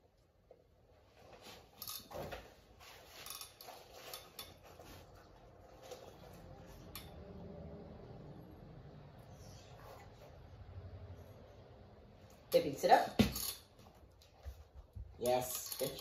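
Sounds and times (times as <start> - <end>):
faint low hum: 4.0 - 12.7.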